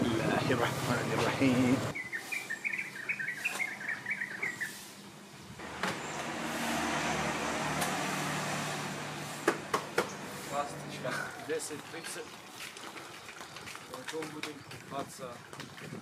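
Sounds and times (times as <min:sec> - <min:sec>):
small bird chirping: 0:01.9 - 0:06.2.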